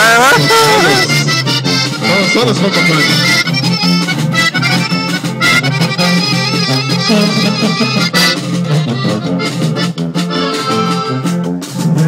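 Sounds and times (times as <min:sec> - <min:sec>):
accordion-led folk music: 0:00.0 - 0:12.0
pulsing bass line: 0:00.0 - 0:12.0.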